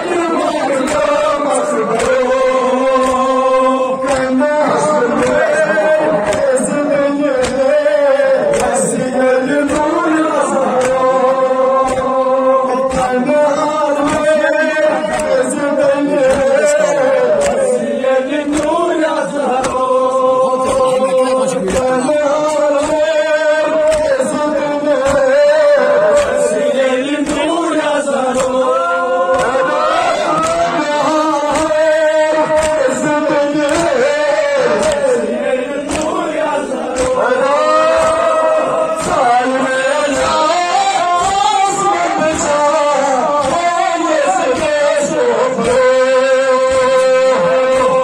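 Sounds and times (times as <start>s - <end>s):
men chanting over loudspeakers: 0.0s - 48.0s.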